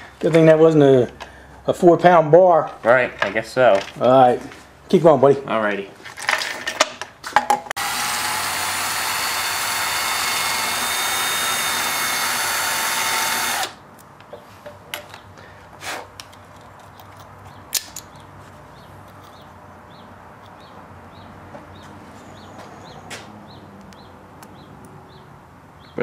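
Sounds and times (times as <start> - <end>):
cordless drill running: 7.8 - 13.8.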